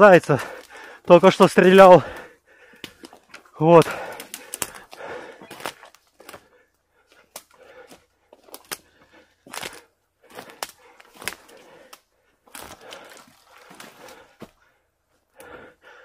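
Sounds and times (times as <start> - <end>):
twigs snapping: 2.7 - 6.5, 7.1 - 14.2.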